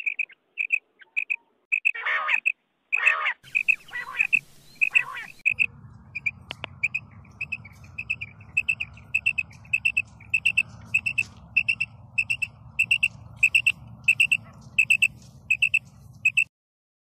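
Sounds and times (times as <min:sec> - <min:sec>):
quail calling: 0:00.0 - 0:16.5
steady low hum: 0:03.5 - 0:16.5.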